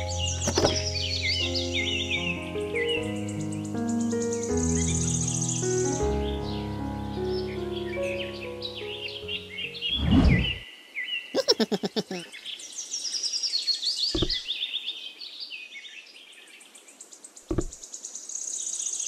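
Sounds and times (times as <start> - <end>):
songbirds chirping and trilling: 0.0 - 19.0
short dull thumps: 0.4 - 0.9, 14.2 - 14.4, 17.5 - 17.8.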